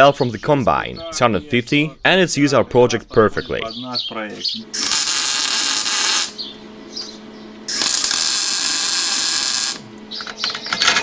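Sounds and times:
arc welding hiss: 0:04.8 - 0:06.4, 0:07.7 - 0:09.9.

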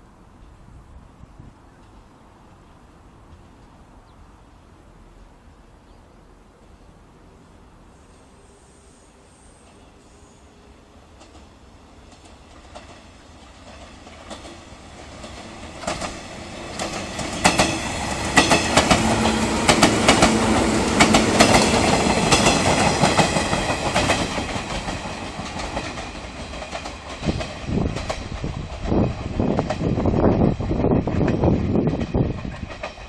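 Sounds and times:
train hum: 0:00.0 - 0:33.0
train wheels clicking over rail joints: 0:11.1 - 0:33.0.

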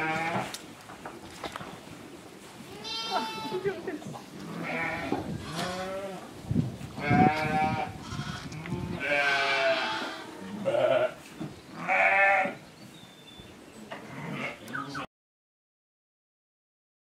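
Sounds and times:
sheep bleating: 0:00.0 - 0:00.5, 0:02.7 - 0:06.2, 0:07.0 - 0:11.2, 0:11.8 - 0:12.6, 0:14.1 - 0:15.1.

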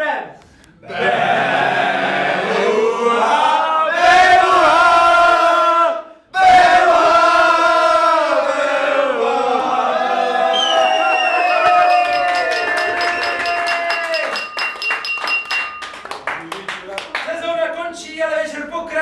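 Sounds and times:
group singing an anthem: 0:00.8 - 0:10.9.

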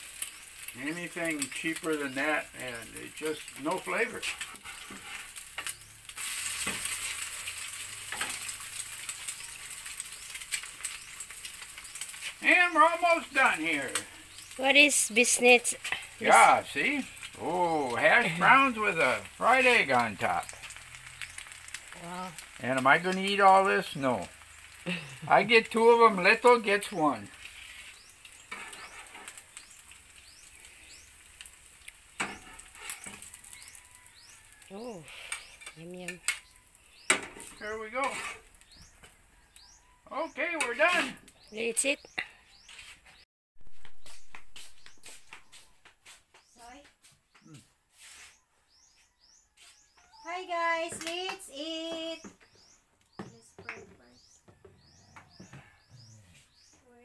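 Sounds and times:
eggs sizzling on a griddle: 0:00.0 - 0:47.2, 0:47.9 - 0:53.3
metal spatula scraping a pan: 0:04.1 - 0:11.2, 0:26.8 - 0:29.7, 0:32.2 - 0:34.3, 0:35.0 - 0:38.8.

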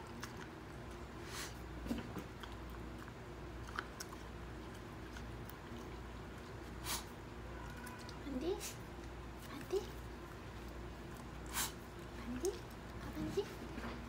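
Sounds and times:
dog chewing dry food: 0:00.0 - 0:06.8.

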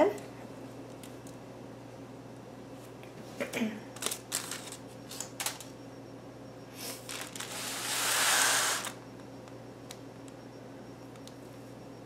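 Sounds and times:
aluminium foil crackling: 0:04.0 - 0:05.7, 0:07.1 - 0:07.7.

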